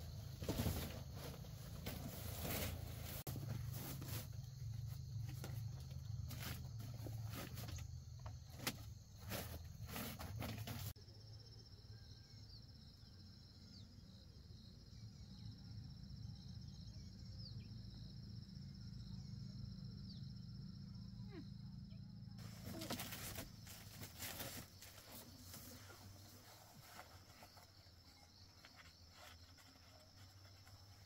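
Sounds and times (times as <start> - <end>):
knocks and mat rustling: 0.0 - 10.9, 22.4 - 31.0.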